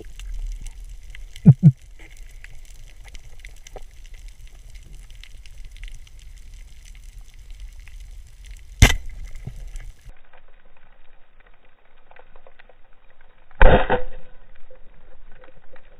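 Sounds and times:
faint crackling ticks: 0:00.0 - 0:13.5.

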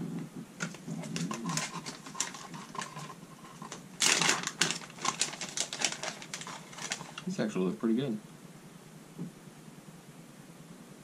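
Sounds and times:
plastic package crinkling: 0:00.6 - 0:07.3
plastic package ripping open: 0:00.6 - 0:07.3.

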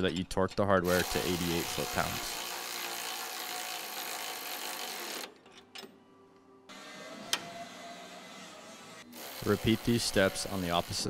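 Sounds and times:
cordless ratchet running: 0:00.8 - 0:05.3, 0:09.2 - 0:11.0.

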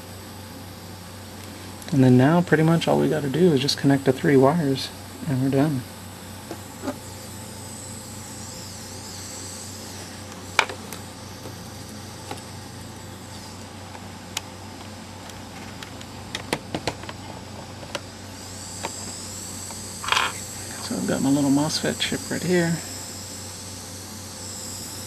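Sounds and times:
steady low hum: 0:00.0 - 0:25.0
electronic parts clicking on desk: 0:13.9 - 0:18.1, 0:19.7 - 0:20.4.

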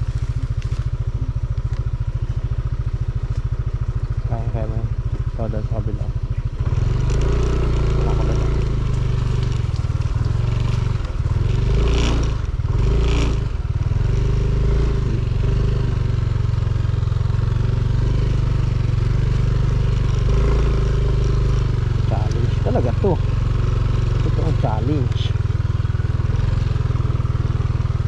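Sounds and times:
small motorcycle engine running: 0:00.0 - 0:28.0.

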